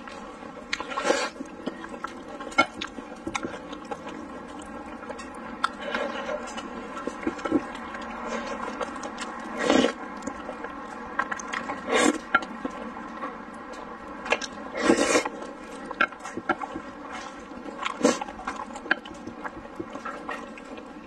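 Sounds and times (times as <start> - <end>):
wet chewing: 0.0 - 21.0
noodle slurping: 0.7 - 5.0, 5.6 - 10.7, 14.7 - 21.0.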